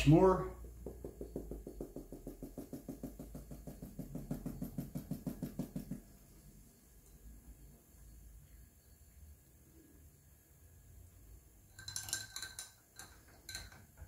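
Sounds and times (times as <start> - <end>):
rapid tapping on plastic container: 0.6 - 6.2.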